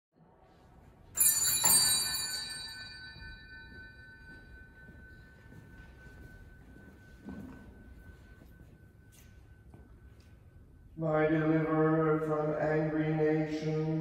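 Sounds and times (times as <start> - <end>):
bell ringing: 1.1 - 11.0.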